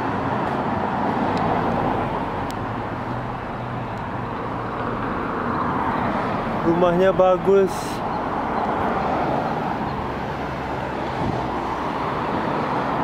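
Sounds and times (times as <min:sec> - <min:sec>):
cars passing: 0:00.0 - 0:13.0.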